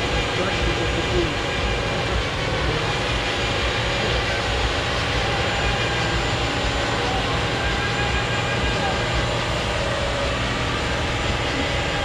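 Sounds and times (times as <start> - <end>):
truck diesel engine roaring: 0.0 - 12.0.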